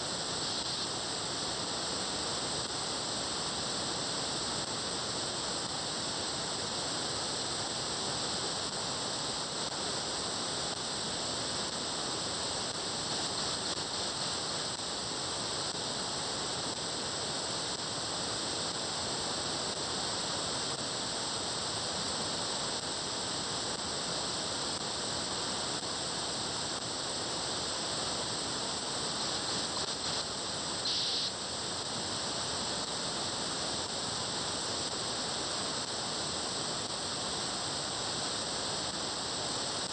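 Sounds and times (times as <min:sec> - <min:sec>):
radio receiver static hiss: 0:00.0 - 0:39.9.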